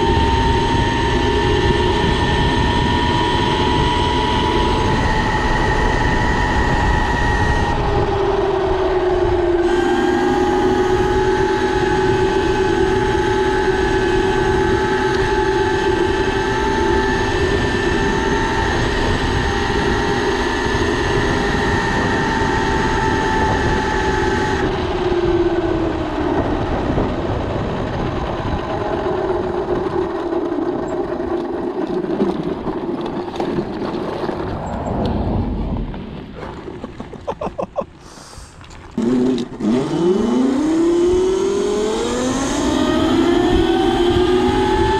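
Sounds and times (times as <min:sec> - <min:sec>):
electric motor whining: 0:00.0 - 0:26.6, 0:38.6 - 0:44.9
wind and tyre noise: 0:00.0 - 0:44.9.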